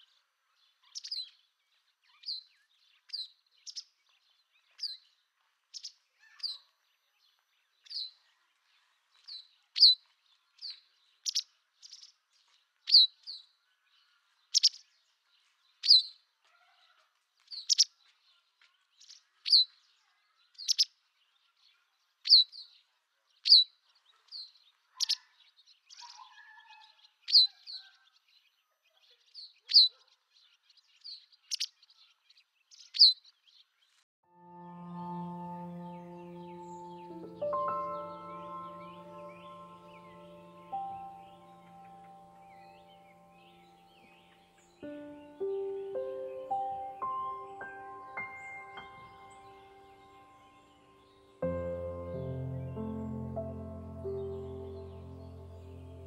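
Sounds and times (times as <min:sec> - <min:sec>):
bird chirping: 0:34.4 - 0:56.0.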